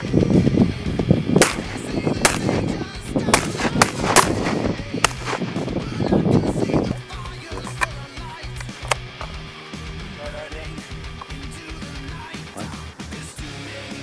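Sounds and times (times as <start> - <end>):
dense continuous din: 0.0 - 14.0
sharp cracks: 1.3 - 9.4.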